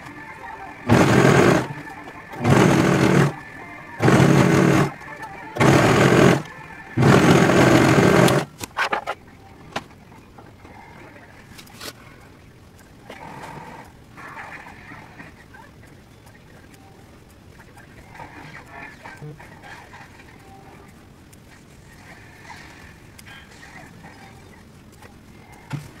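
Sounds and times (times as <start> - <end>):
overlock sewing machine stitching: 0.9 - 3.4, 4.0 - 5.0, 5.6 - 8.5
sharp clicks: 0.9 - 3.4, 4.0 - 9.3.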